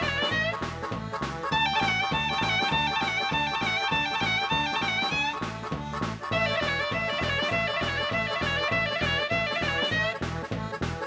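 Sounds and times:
melody of held notes: 0:01.5 - 0:05.4.

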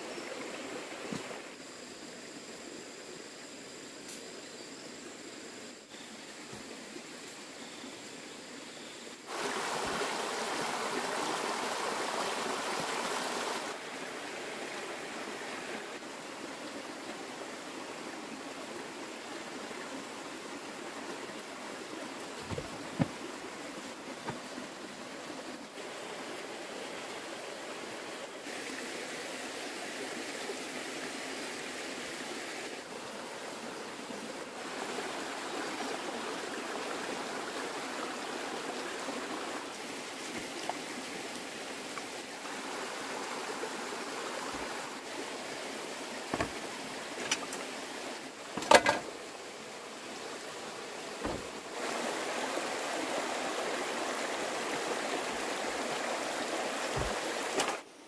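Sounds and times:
running water: 0:00.0 - 0:58.0
sharp knocks: 0:22.4 - 0:23.2, 0:46.3 - 0:46.6, 0:51.2 - 0:51.6.

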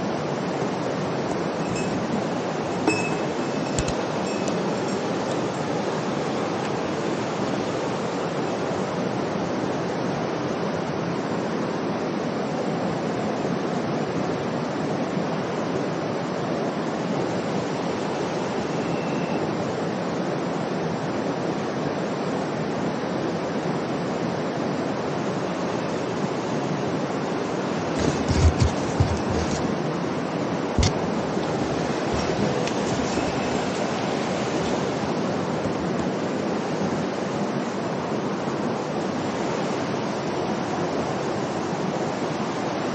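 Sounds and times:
river rushing over rocks: 0:00.0 - 0:18.7, 0:19.5 - 0:42.9
low thumps on microphone: 0:28.0 - 0:29.7, 0:30.8 - 0:33.4.

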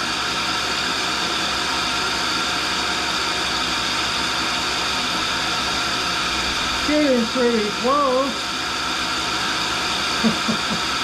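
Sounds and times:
grinding machine whirring: 0:00.0 - 0:11.0.

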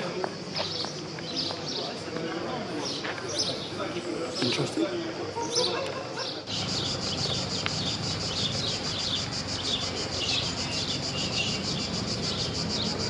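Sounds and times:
small birds chirping: 0:00.5 - 0:02.1, 0:05.4 - 0:13.0
cicadas buzzing: 0:06.4 - 0:13.0.

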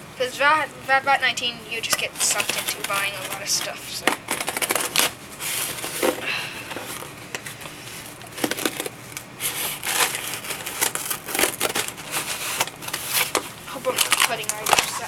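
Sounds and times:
tape crackling and tearing: 0:01.8 - 0:15.0
knife slicing packing tape: 0:01.9 - 0:06.2, 0:08.3 - 0:15.0.

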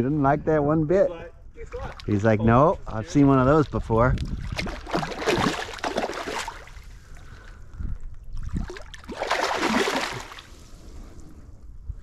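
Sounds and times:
fish splashing in water: 0:04.4 - 0:06.8, 0:08.5 - 0:10.6.

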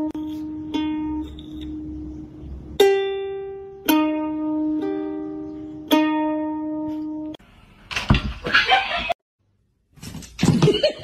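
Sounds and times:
ukulele notes plucked: 0:00.0 - 0:07.4.

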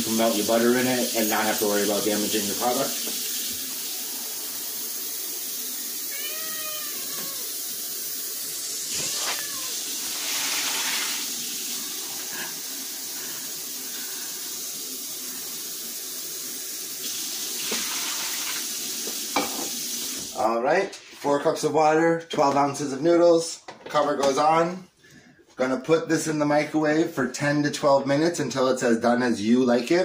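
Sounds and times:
faucet filling plastic pitcher: 0:00.0 - 0:20.4.

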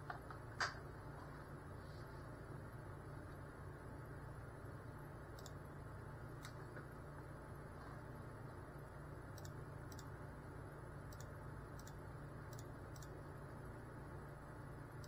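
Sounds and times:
faint low hum: 0:00.0 - 0:15.0
faint irregular clicks: 0:05.3 - 0:05.6, 0:09.3 - 0:10.1, 0:11.1 - 0:13.3.

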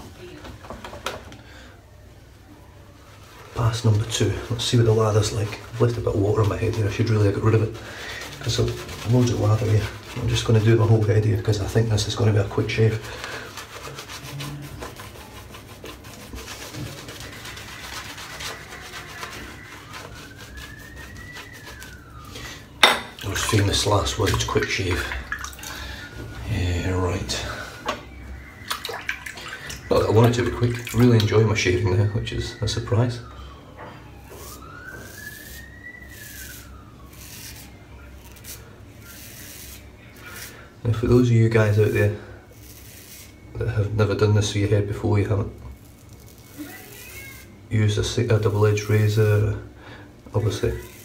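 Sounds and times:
shaving brush scrubbing scalp: 0:03.2 - 0:22.3, 0:34.3 - 0:43.4, 0:45.7 - 0:49.5, 0:50.4 - 0:51.0
razor scraping stubble: 0:12.3 - 0:22.0, 0:34.3 - 0:40.6, 0:41.6 - 0:43.4, 0:45.8 - 0:47.6, 0:50.6 - 0:51.0.

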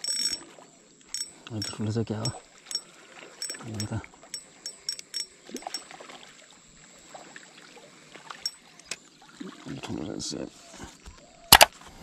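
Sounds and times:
fishing reel clicking: 0:00.0 - 0:00.5, 0:01.1 - 0:05.9, 0:08.4 - 0:09.0
faint water splashing: 0:00.0 - 0:12.0.

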